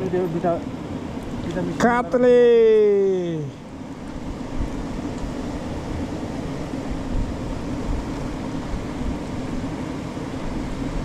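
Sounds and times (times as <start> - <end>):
wind buffeting microphone: 3.6 - 11.0.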